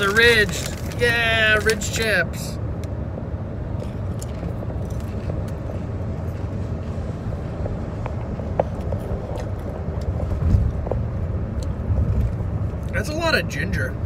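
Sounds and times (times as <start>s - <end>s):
potato chip crunching: 0.0s - 2.0s
car road and engine rumble: 0.0s - 14.0s.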